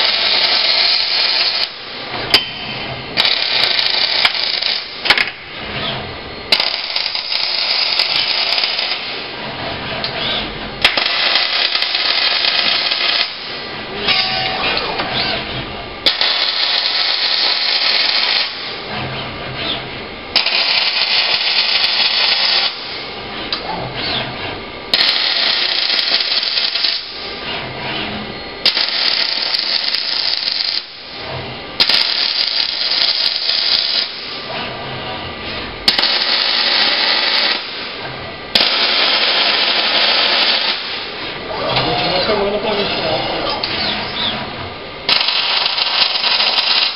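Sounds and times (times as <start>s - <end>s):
welding arc sizzling: 0.0s - 2.1s, 3.1s - 5.4s, 6.4s - 9.4s, 10.8s - 14.3s, 16.0s - 18.9s, 20.2s - 23.2s, 24.9s - 27.4s, 28.6s - 31.2s, 31.8s - 34.5s, 35.8s - 46.9s.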